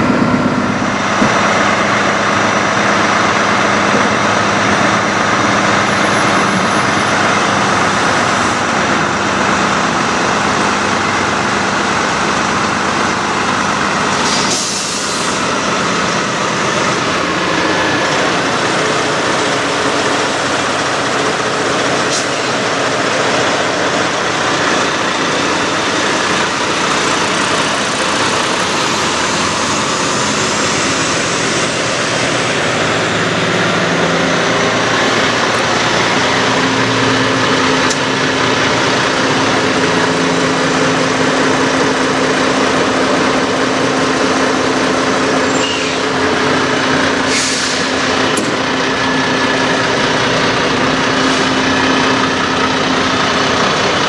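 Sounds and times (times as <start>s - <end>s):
diesel truck engine idling: 0.0s - 54.0s
air hiss: 14.2s - 15.4s.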